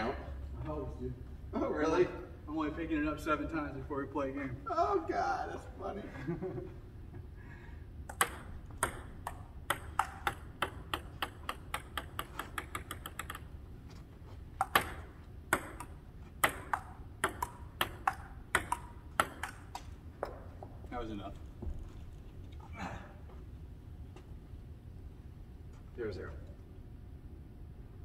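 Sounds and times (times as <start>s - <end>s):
table tennis ball bouncing: 8.0s - 13.6s, 14.6s - 20.7s
table tennis rally: 8.0s - 13.7s, 14.5s - 21.3s.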